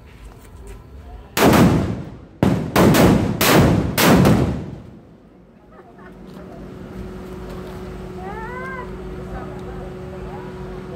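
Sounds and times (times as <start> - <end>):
firecrackers exploding: 1.4 - 5.0.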